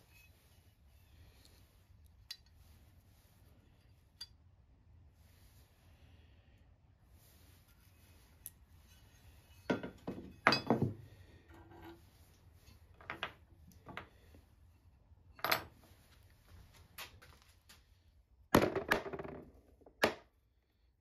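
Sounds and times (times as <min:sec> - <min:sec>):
metal parts clinking and knocking: 0:09.6 - 0:11.0.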